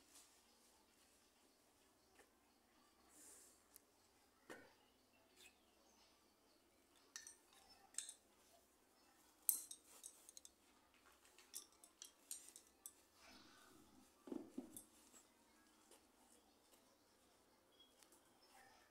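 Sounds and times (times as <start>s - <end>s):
wooden loom sticks clicking: 7.1s - 8.2s, 9.5s - 10.5s, 11.4s - 13.0s.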